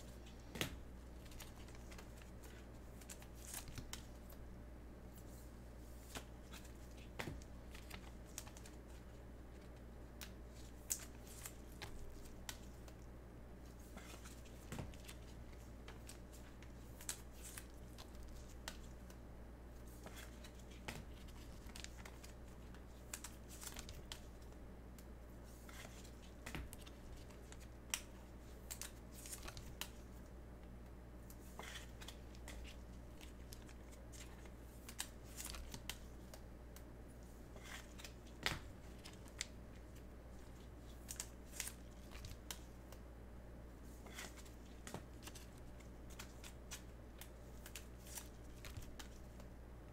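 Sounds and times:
trading cards rustling: 0:00.0 - 0:04.4, 0:13.6 - 0:19.2, 0:19.8 - 0:24.6, 0:31.3 - 0:36.4, 0:37.4 - 0:43.0, 0:43.9 - 0:49.5.

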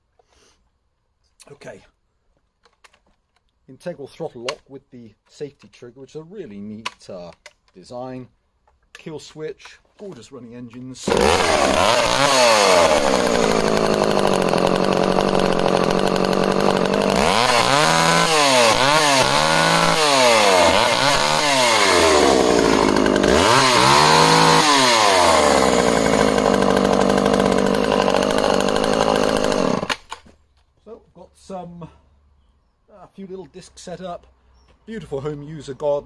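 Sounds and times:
chainsaw engine revving and idling: 0:11.0 - 0:30.2.

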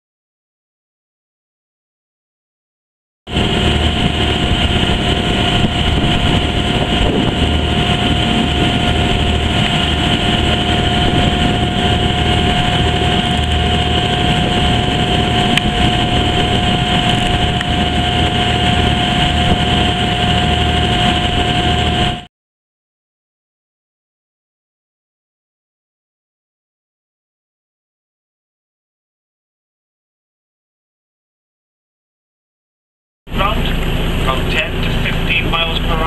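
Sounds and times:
boat engine running: 0:03.3 - 0:22.3, 0:33.3 - 0:36.0
constant engine whine: 0:03.3 - 0:22.3, 0:33.3 - 0:36.0
water rushing: 0:03.3 - 0:22.3, 0:33.3 - 0:36.0.

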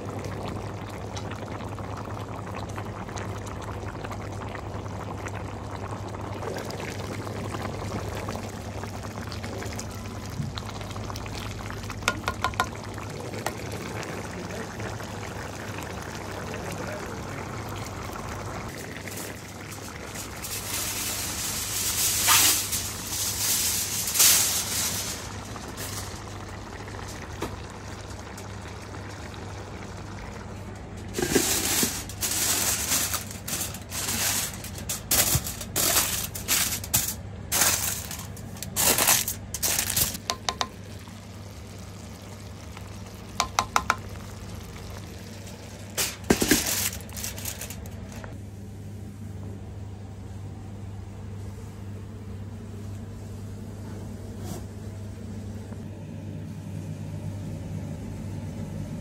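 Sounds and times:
food bubbling and hissing in pan: 0:00.0 - 0:49.4
steady low hum: 0:00.0 - 0:59.0
aluminium foil rustling: 0:18.1 - 0:27.2, 0:31.0 - 0:40.3, 0:44.8 - 0:48.4.

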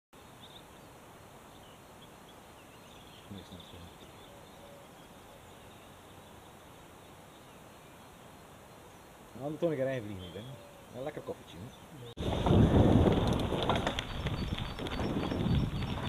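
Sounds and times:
faint outdoor background noise: 0:00.2 - 0:16.0.

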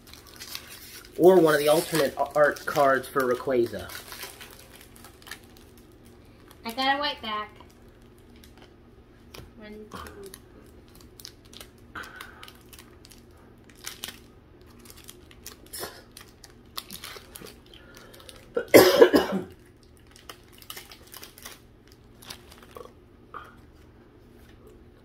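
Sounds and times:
trading cards rustling: 0:00.0 - 0:06.2
person coughing: 0:18.6 - 0:19.6.

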